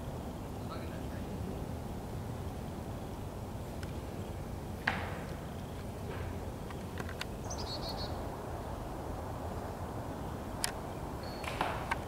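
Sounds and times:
high bird chirps: 0:07.5 - 0:08.2.

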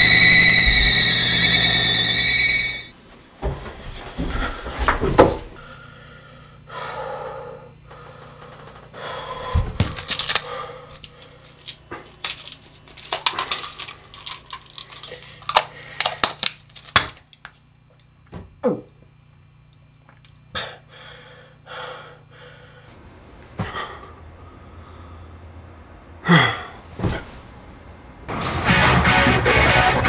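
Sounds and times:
low hum: 0:00.0 - 0:03.1.

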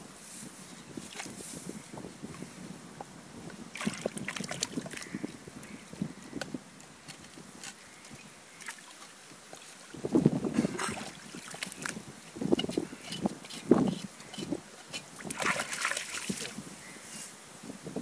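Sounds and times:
water sloshing: 0:03.7 - 0:05.8, 0:07.1 - 0:16.6
hands squelching in wet mud: 0:13.0 - 0:16.6.

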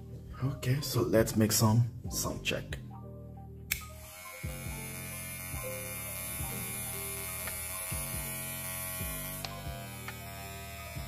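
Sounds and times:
hair clipper buzzing: 0:03.7 - 0:11.0.

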